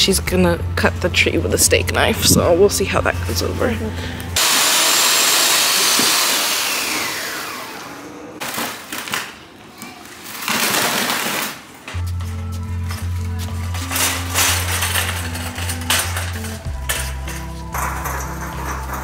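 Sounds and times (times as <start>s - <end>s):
music: 0.0s - 4.4s, 11.9s - 19.0s
electric chainsaw motor whine: 4.4s - 8.4s.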